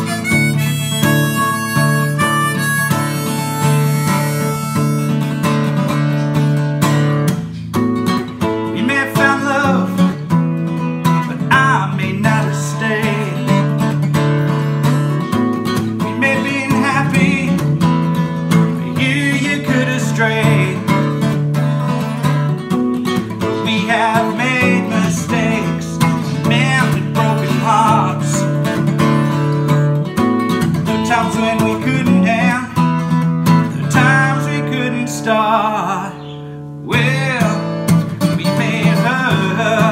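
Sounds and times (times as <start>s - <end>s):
harmonica melody: 0.0s - 7.2s
strummed acoustic guitar: 0.0s - 39.9s.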